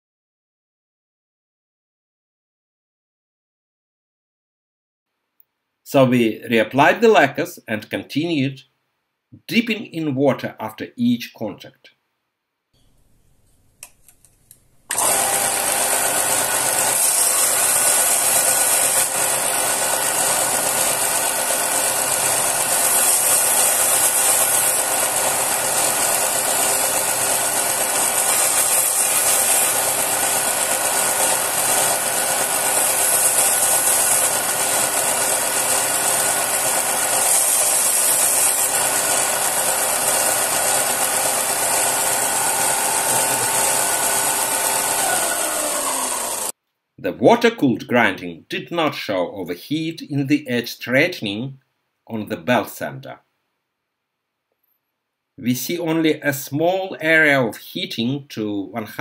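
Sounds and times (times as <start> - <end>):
belt sander running: 14.9 - 46.6.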